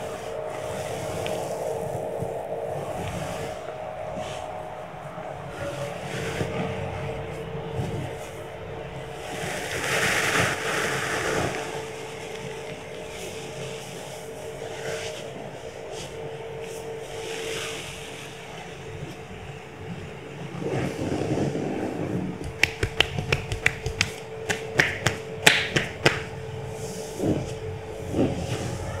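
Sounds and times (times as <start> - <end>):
steady low hum: 0.0 - 29.0
sharp slap-like clicks: 22.4 - 26.3.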